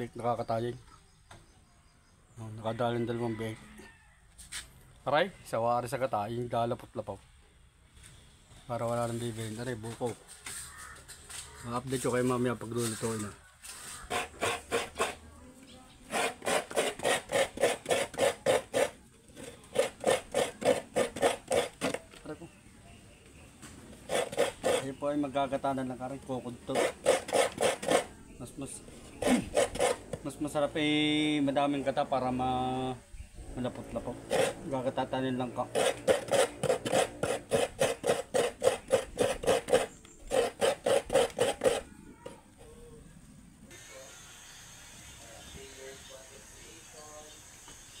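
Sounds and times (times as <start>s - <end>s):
coconut being grated by hand: 13.9s - 15.2s, 16.1s - 22.2s, 23.9s - 25.8s, 26.5s - 28.2s, 29.0s - 30.3s, 33.7s - 42.4s.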